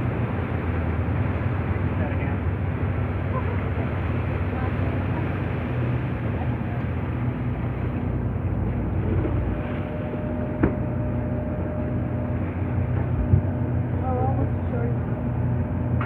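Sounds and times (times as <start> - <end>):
boat engine droning: 0.0 - 16.0
wind and water noise: 0.0 - 16.0
thump: 10.6 - 10.9.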